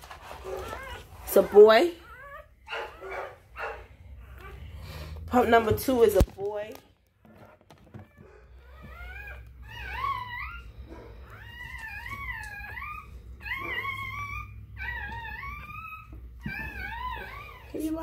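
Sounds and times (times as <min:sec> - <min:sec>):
puppy squealing: 0:00.4 - 0:05.9, 0:08.1 - 0:18.0.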